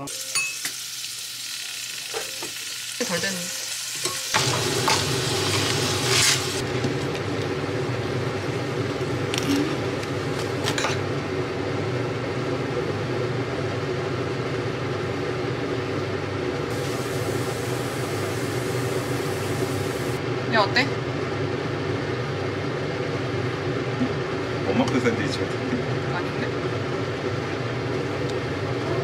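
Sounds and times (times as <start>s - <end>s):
shrimp sizzling on griddle: 0.0s - 6.6s, 16.7s - 20.2s
electric fan hum: 0.0s - 29.0s.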